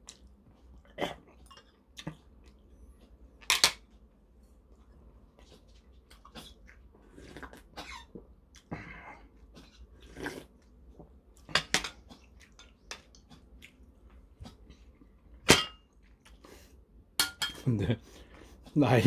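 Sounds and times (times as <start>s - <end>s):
person slurping soup: 9.7s - 10.6s.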